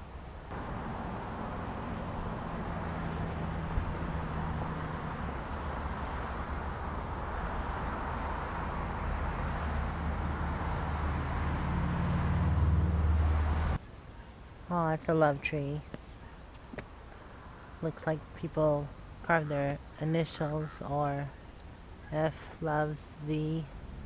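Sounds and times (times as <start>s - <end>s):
low engine hum: 0.0s - 13.8s
road traffic rushing: 0.0s - 13.8s, 16.1s - 24.0s.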